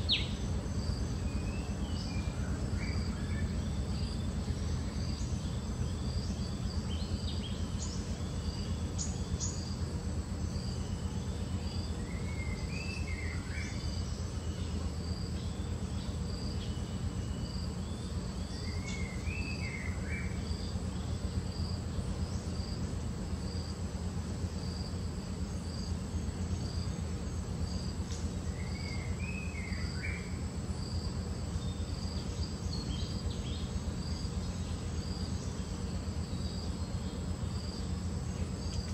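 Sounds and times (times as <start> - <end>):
insect chirping: 0.0 - 38.9
steady low rumble: 0.0 - 38.9.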